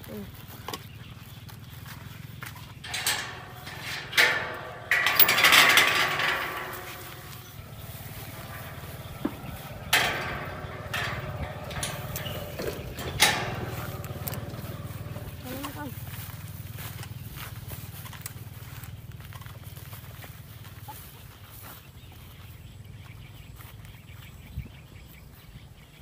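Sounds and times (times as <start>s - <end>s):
low engine hum: 0.0s - 25.8s
metal gate rattling and clanking: 2.5s - 17.1s.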